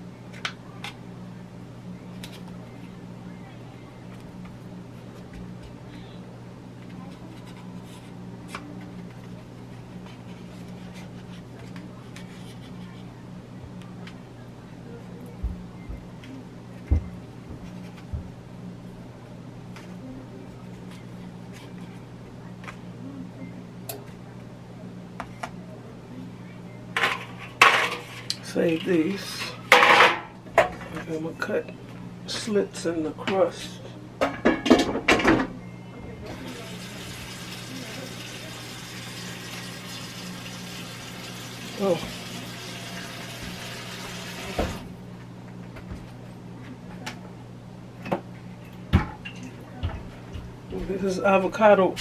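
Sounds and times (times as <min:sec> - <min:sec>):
steady low hum: 0:00.0 - 0:52.0
fan hiss: 0:36.2 - 0:45.0.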